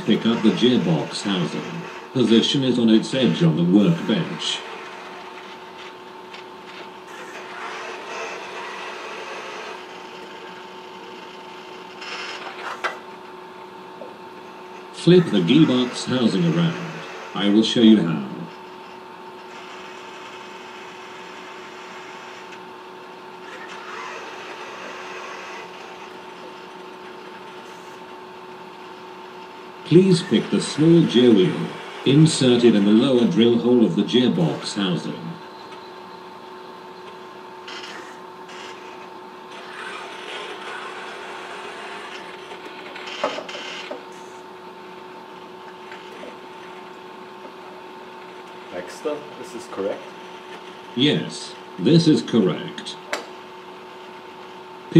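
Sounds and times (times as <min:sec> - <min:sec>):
faint steady hum: 0:00.0 - 0:54.9
robot arm motors whirring: 0:06.7 - 0:13.1, 0:23.4 - 0:28.1, 0:37.6 - 0:44.4.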